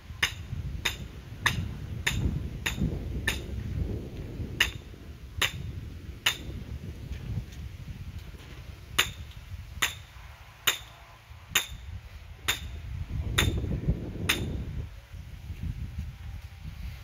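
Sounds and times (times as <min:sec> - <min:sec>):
hammer striking metal: 0:00.2 - 0:03.5, 0:09.0 - 0:10.9, 0:11.5 - 0:11.8, 0:12.5 - 0:12.8, 0:14.3 - 0:14.5.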